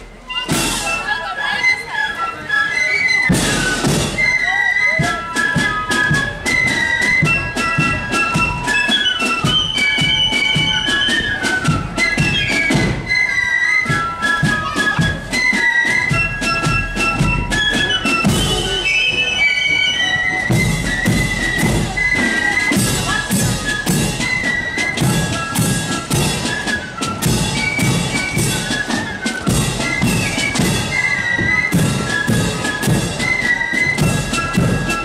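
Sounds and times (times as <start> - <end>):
high flute melody: 0.0 - 35.0
drum strikes: 3.3 - 4.3, 20.4 - 30.9.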